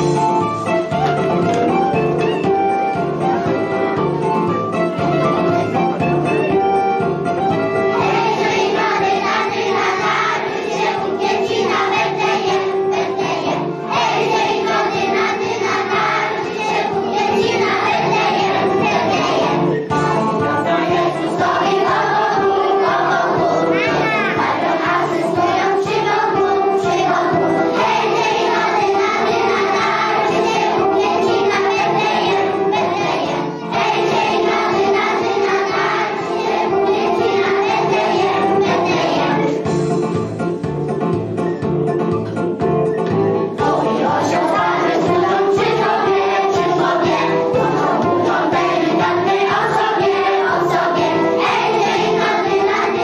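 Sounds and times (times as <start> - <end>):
instrumental backing with beat: 0.0 - 53.0
children singing into a microphone: 7.9 - 39.6, 43.5 - 53.0.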